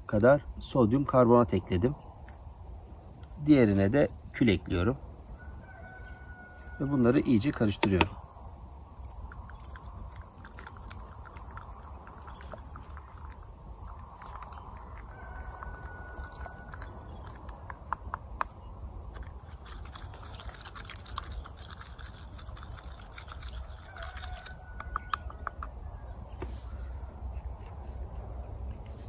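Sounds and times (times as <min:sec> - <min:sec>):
stick scraping wet soil: 0:19.1 - 0:25.3.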